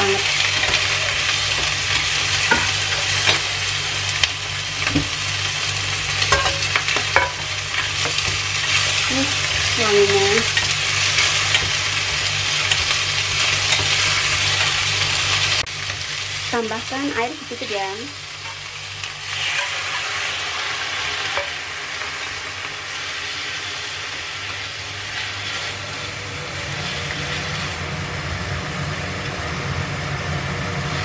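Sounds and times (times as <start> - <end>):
vegetables sizzling in a pan: 0.0 - 31.0
chopsticks tapping and scraping pan: 0.4 - 3.5, 6.2 - 8.9.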